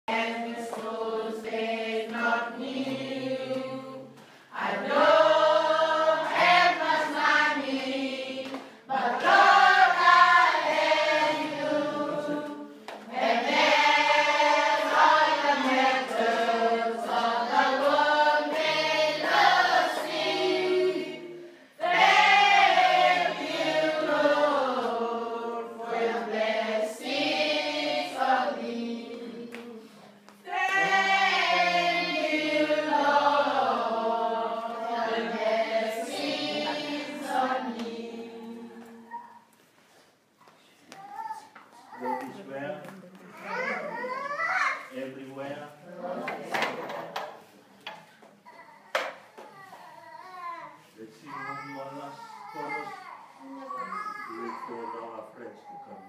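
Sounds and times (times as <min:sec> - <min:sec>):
children singing together: 0:00.0 - 0:39.5.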